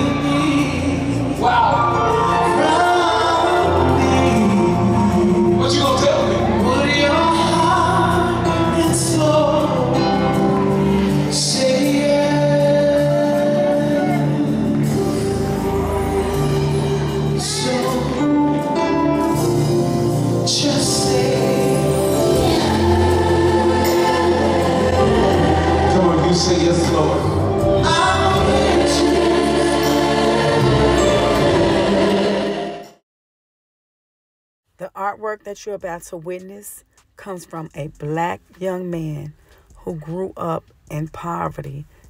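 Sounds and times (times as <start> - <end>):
band with steady bass line: 0.0 - 32.6
group of singers: 0.0 - 33.0.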